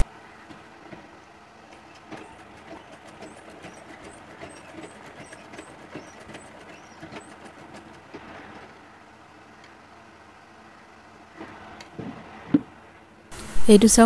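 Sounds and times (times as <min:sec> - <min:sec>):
sewing machine stitching: 0:01.7 - 0:08.7.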